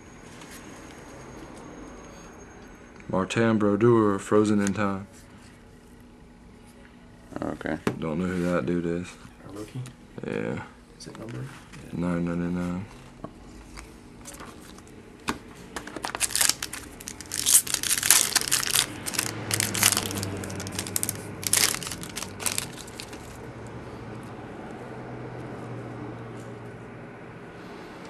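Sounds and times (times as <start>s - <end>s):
foil wrapper tearing and crinkling: 16.0s - 23.4s.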